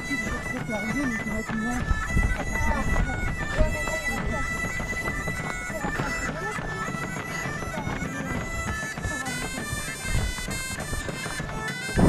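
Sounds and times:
bagpipe-like melody: 0.0s - 12.0s.

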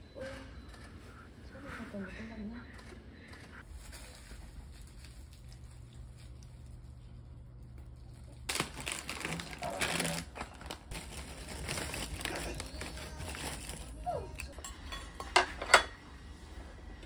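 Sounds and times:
low steady hum: 0.0s - 17.0s
plastic snack bag crinkling: 8.0s - 14.5s.

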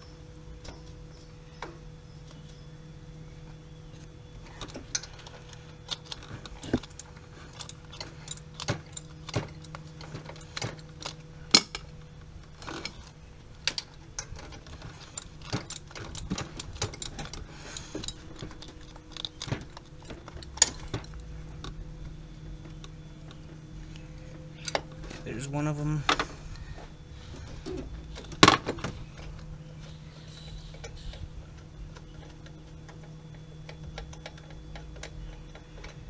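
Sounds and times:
metal hand tools clinking: 15.0s - 21.3s.

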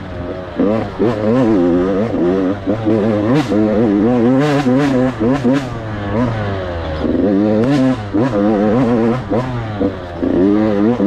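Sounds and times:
motocross bike engine revving: 0.0s - 11.0s.

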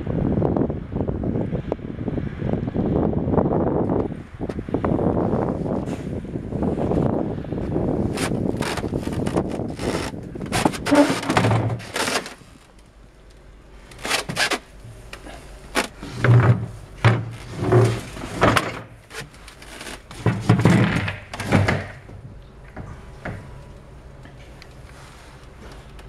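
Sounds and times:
footsteps on wooden deck: 7.6s - 12.8s.

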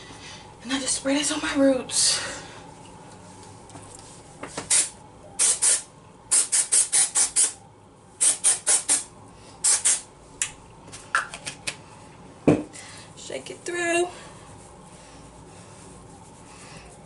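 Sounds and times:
aerosol spray hissing bursts: 4.7s - 7.6s, 8.2s - 10.0s.

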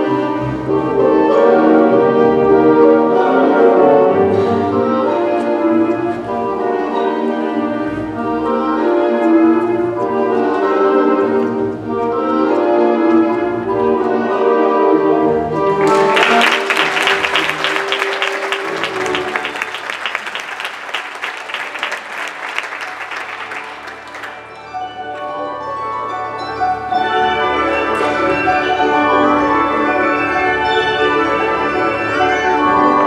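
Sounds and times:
orchestral music: 0.0s - 33.0s
audience applause: 15.7s - 24.5s.

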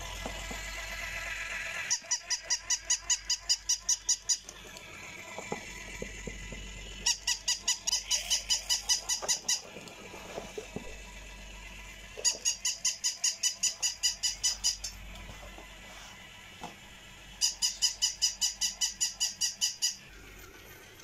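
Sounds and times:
toy dog electronic barks: 1.8s - 4.6s, 7.0s - 9.7s, 12.2s - 15.0s, 17.4s - 20.0s.

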